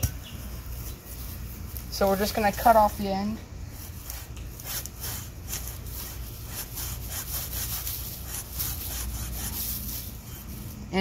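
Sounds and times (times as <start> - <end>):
knife sawing through palm stem: 3.7 - 10.8.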